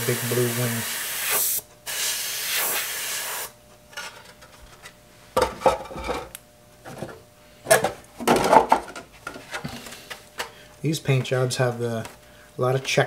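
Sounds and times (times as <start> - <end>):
airbrush spraying hiss: 0.0 - 3.5.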